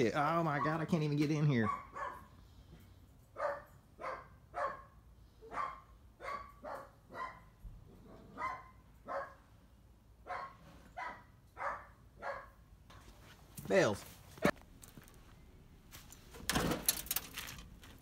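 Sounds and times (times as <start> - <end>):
dog barking: 0.5 - 0.9, 1.6 - 2.3, 3.4 - 9.4, 10.2 - 12.6.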